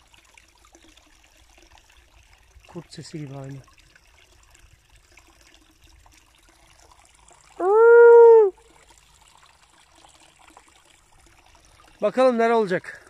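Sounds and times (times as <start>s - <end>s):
dog howling: 7.6s - 8.6s.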